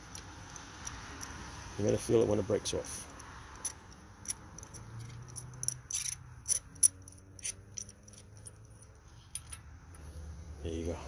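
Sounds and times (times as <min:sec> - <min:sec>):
metallic socket clicks and rattles: 0:00.0 - 0:01.4, 0:03.1 - 0:09.7.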